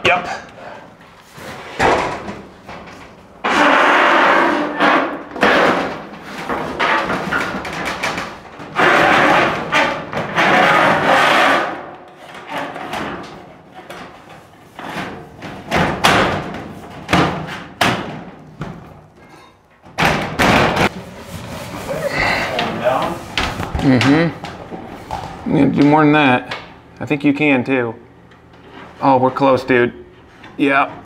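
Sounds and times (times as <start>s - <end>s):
steel panel scraping and rattling: 1.5s - 15.8s.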